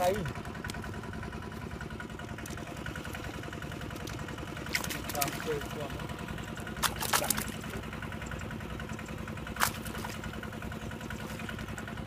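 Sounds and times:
small engine running: 0.0 - 12.0.

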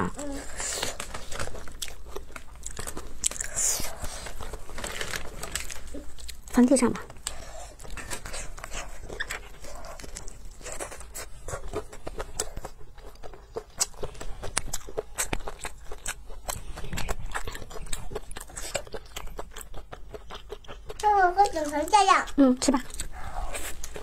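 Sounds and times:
chewing and biting pancake: 0.1 - 24.0.

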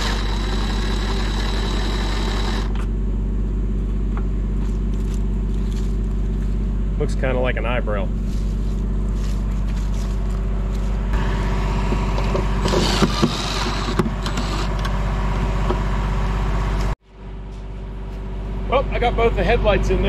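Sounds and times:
cordless drill driving screws: 0.0 - 2.8, 12.6 - 14.8
engine idling: 0.0 - 20.0.

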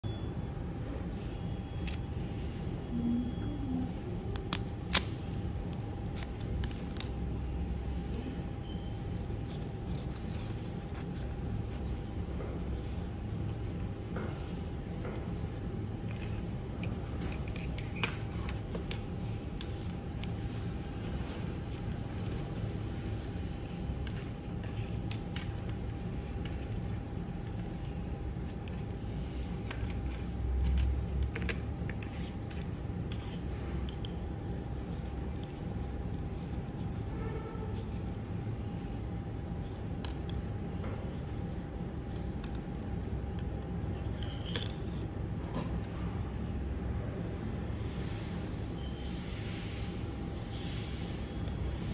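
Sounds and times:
low background hum: 0.0 - 51.9
faint crinkling of wipe: 3.9 - 45.1.

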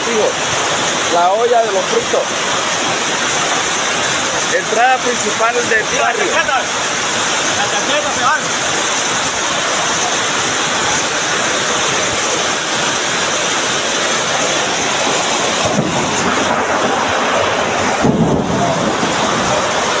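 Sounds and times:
floodwater rushing across concrete: 0.0 - 20.0
torrential rain: 0.0 - 20.0
wind on microphone: 14.6 - 20.0.

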